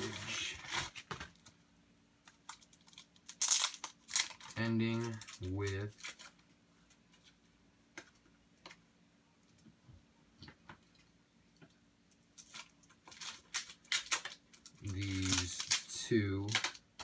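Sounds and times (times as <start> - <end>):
package rustling: 0.0 - 1.6, 2.3 - 7.4, 12.3 - 16.8.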